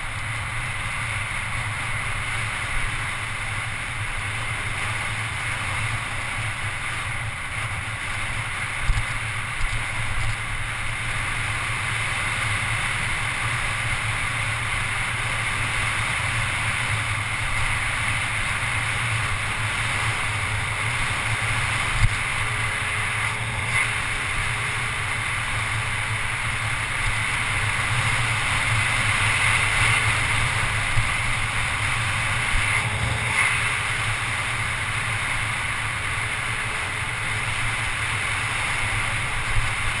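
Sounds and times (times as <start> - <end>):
wind rush on microphone: 0.0 - 40.0.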